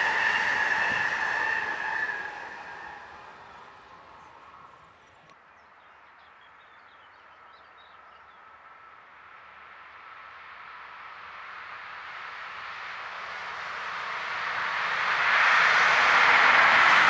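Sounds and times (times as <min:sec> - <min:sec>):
train noise: 0:00.0 - 0:05.3, 0:09.4 - 0:17.0
faint hum of approaching train: 0:00.0 - 0:17.0.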